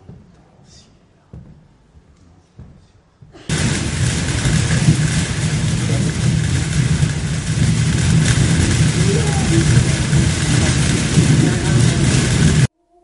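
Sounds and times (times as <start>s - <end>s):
hiss: 3.4s - 12.7s
engine-like rumbling drone: 3.5s - 12.7s.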